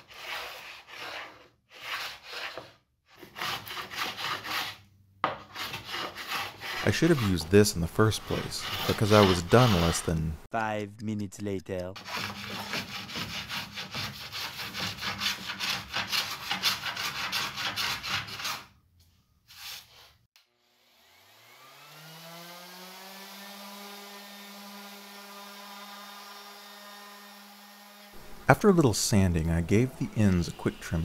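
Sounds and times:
hand plane shaving wood: 0:00.0 - 0:10.3, 0:12.0 - 0:18.7, 0:28.7 - 0:31.0
orbit sander whine: 0:20.9 - 0:28.5.

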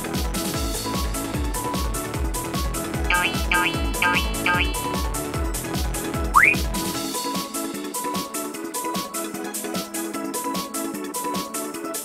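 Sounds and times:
bright synth figure: 0:03.1 - 0:05.0, 0:06.4 - 0:06.7
electronic music with drum beat: 0:03.1 - 0:05.2, 0:06.4 - 0:06.9.

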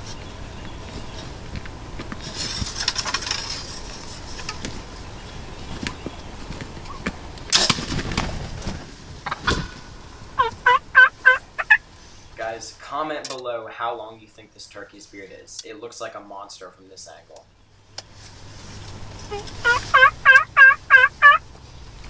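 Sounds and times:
light rustling: 0:00.0 - 0:10.6, 0:17.9 - 0:20.0
turkey gobbling: 0:09.3 - 0:11.8, 0:19.3 - 0:21.4.

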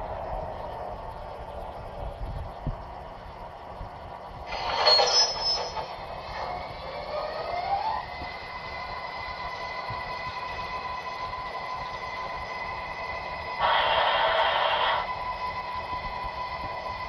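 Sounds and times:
loud burst with high squeal: 0:04.5 - 0:06.0, 0:13.6 - 0:15.2
electric motor whine: 0:13.6 - 0:16.0.

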